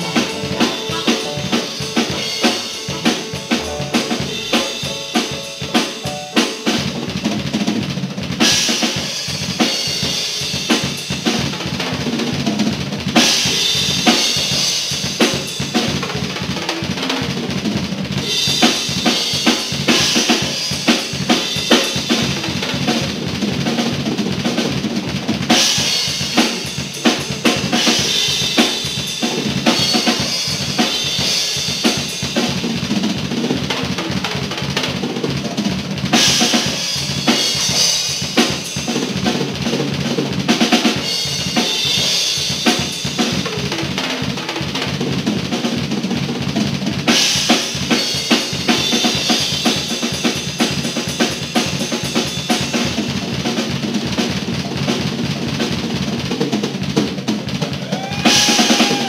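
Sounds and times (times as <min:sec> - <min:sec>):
cymbals washing: 0:00.0 - 0:07.2
rock band playing: 0:00.0 - 0:59.0.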